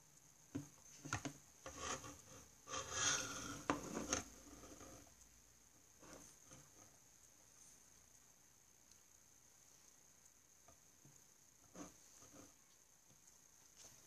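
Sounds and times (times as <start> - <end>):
scratching and rubbing on paper: 0.9 - 5.2, 6.0 - 6.9, 11.6 - 12.7.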